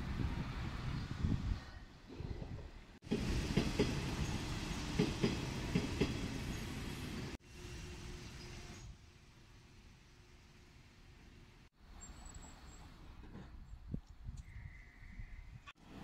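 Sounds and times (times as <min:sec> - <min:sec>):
train wheels clanking over rails: 0:03.0 - 0:06.7.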